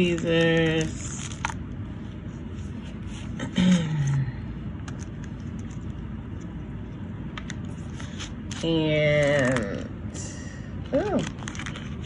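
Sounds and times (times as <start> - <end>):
low background rumble: 0.0 - 12.0
person humming: 3.4 - 4.4.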